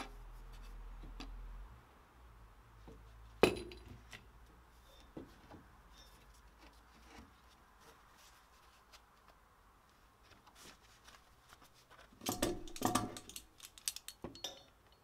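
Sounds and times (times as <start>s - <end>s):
metal pipe clinking: 12.2s - 15.0s.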